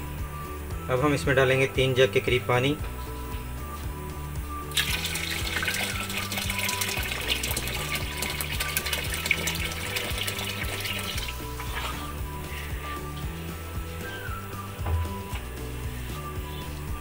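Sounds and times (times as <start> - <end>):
background music: 0.0 - 17.0
water pouring from a jug: 4.7 - 12.2.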